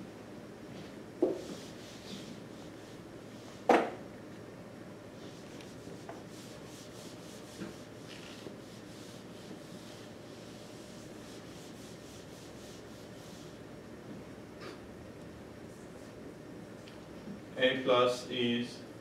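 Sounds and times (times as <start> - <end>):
low room hum: 0.0 - 19.0
rubbing and scuffing: 0.7 - 3.7, 5.2 - 13.6.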